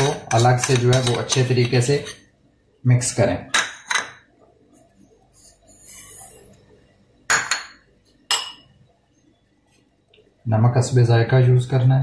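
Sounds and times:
bowls and utensils clinking: 0.0s - 2.3s, 7.3s - 8.7s.

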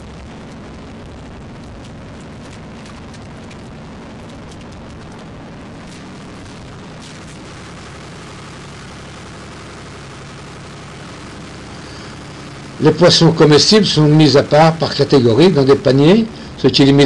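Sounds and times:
boat engine rumbling: 0.0s - 11.4s
rushing noise: 0.0s - 17.0s
faint clicks: 1.6s - 5.3s.

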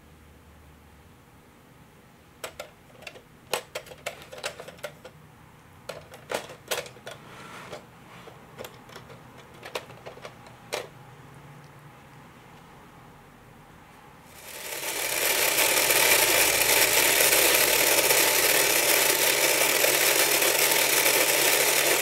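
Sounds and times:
plastic toy game clicking: 2.4s - 5.1s, 14.6s - 22.0s.

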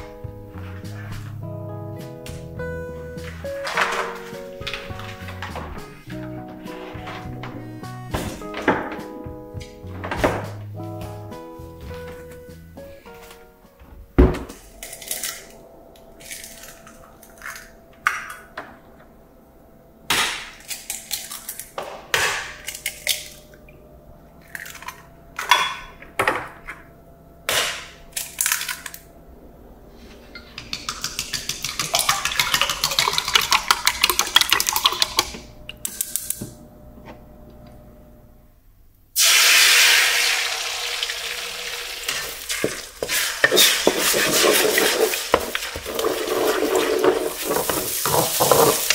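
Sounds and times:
eggs beaten in a jug: 30.4s - 35.4s, 42.1s - 48.9s
eggs sizzling in a hot wok: 39.2s - 48.9s.

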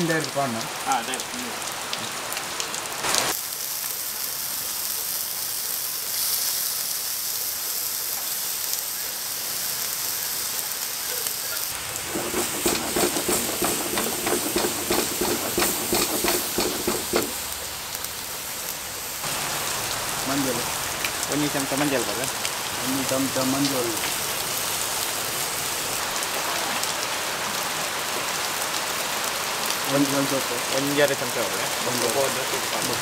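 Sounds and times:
fish sizzling in a pan: 3.0s - 26.9s
rapid crackling and popping: 11.0s - 18.2s.

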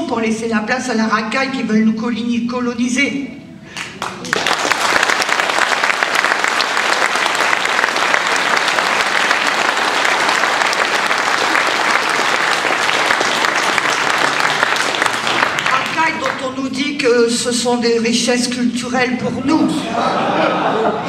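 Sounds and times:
audience applauding: 3.8s - 16.5s.

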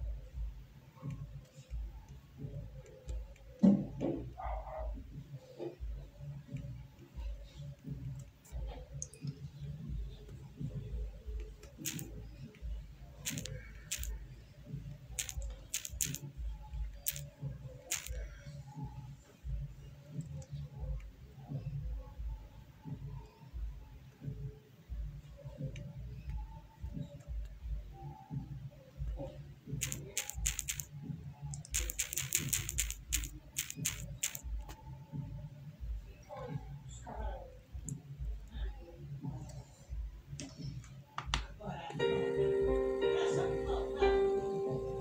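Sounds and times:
sharp irregular clicks: 11.4s - 12.2s, 13.2s - 14.2s, 15.2s - 16.3s, 17.0s - 18.3s, 29.8s - 30.9s, 31.5s - 34.7s.

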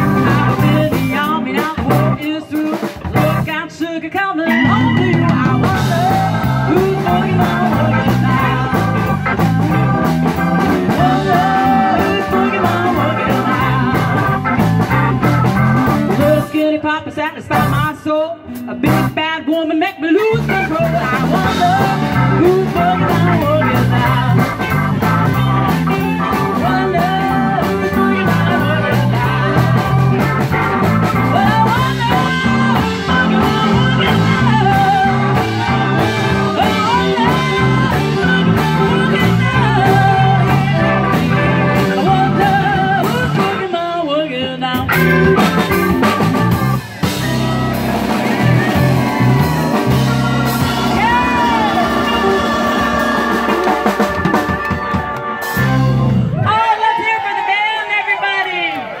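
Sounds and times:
keyboard: 0.0s - 3.6s, 4.4s - 56.9s
drum kit: 0.0s - 3.8s, 4.5s - 16.8s, 17.5s - 19.2s, 20.2s - 43.7s, 44.7s - 56.6s
woman singing: 0.0s - 9.3s, 10.3s - 14.4s, 16.1s - 25.4s, 26.3s - 30.3s, 31.2s - 45.4s.

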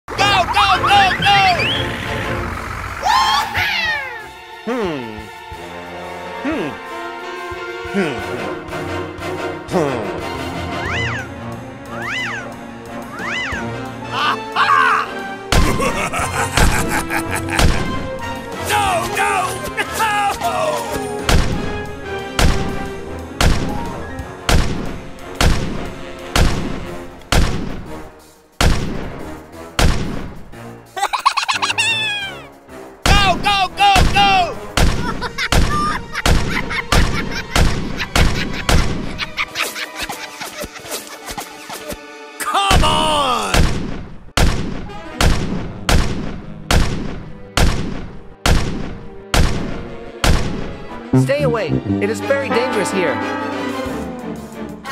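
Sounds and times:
background music: 0.1s - 54.9s
falling whistle: 1.4s - 3.6s
gunfire blasts: 17.6s - 18.0s, 21.2s - 21.8s, 22.4s - 23.8s, 24.5s - 27.9s, 28.6s - 29.2s, 29.8s - 30.4s, 43.5s - 50.6s.

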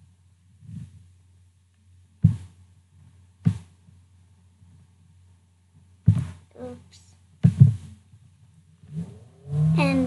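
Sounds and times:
steady low hum: 0.0s - 10.0s
dull thumps: 2.2s - 2.6s, 3.4s - 3.8s, 6.0s - 6.5s, 7.4s - 8.0s.

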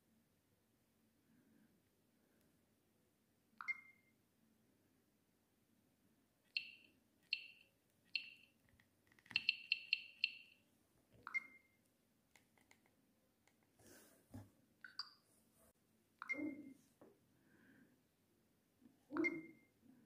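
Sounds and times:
phone key-press beeps: 3.6s - 4.1s, 6.6s - 7.6s, 8.2s - 8.5s, 9.3s - 10.6s, 11.3s - 11.7s.

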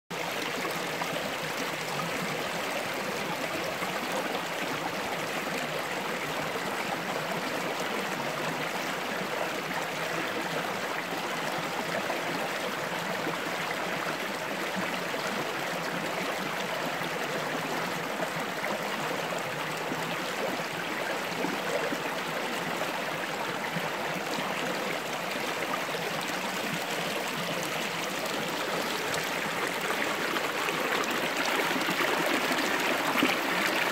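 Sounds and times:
stream rushing over stones: 20.6s - 33.9s.

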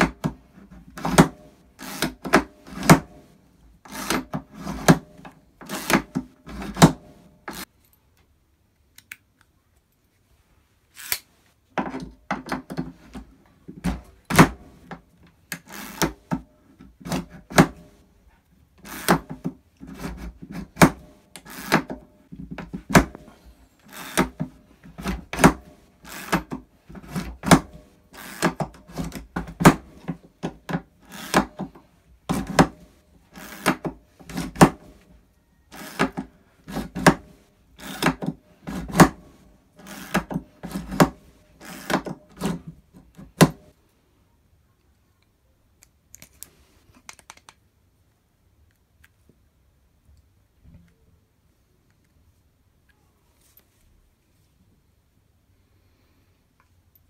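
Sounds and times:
ratchet screwdriver clacking: 11.0s - 11.2s.

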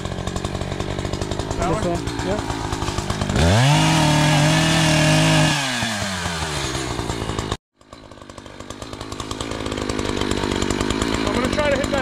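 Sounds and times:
chainsaw revving and idling: 0.0s - 12.0s.

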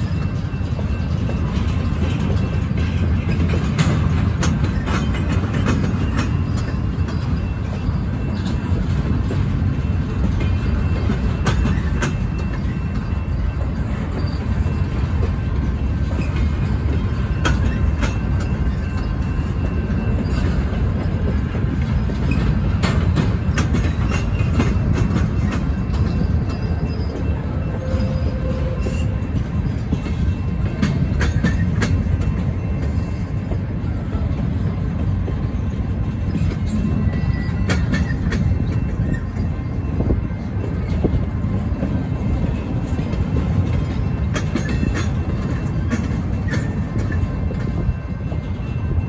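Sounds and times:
train wheels rumbling on rail: 0.0s - 49.0s
faint wheel squeal: 25.4s - 30.5s, 36.3s - 41.0s.

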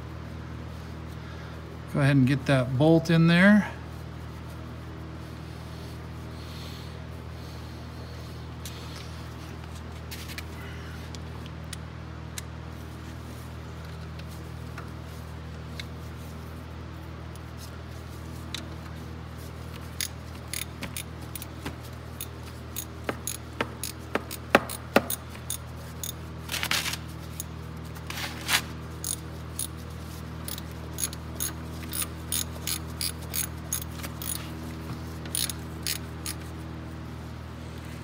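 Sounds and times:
socket ratchet clicking: 20.0s - 21.5s, 22.2s - 26.2s, 30.5s - 34.4s, 35.3s - 36.4s.

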